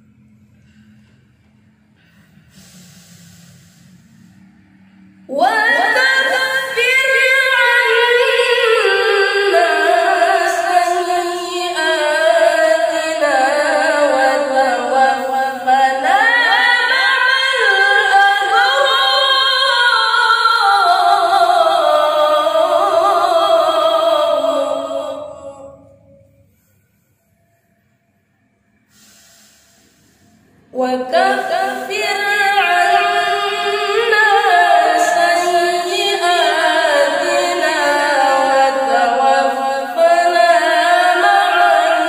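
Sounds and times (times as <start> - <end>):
boy reciting melodically: 5.3 - 25.9, 30.8 - 42.0.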